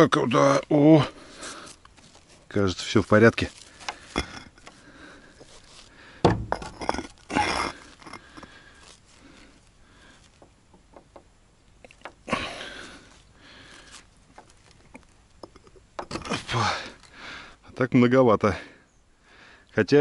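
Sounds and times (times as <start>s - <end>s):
sharp knock with clattering: 6.2s - 6.8s.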